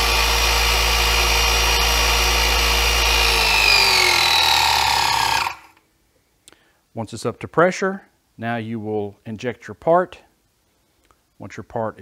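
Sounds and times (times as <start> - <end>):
hydraulic pump motor whining: 0.0 - 5.8.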